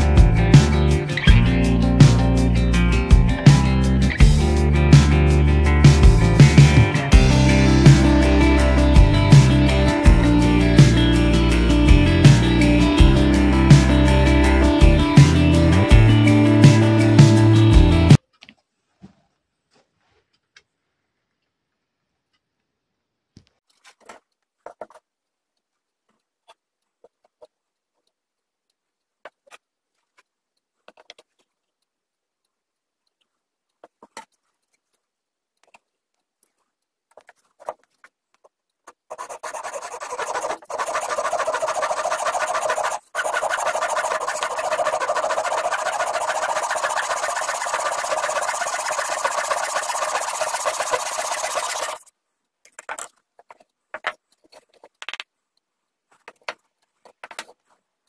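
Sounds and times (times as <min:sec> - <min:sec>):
wood and tools clicking: 0:23.6 - 0:31.9, 0:33.1 - 0:55.3, 0:56.1 - 0:57.8
handsaw rasping through wood: 0:39.1 - 0:52.0.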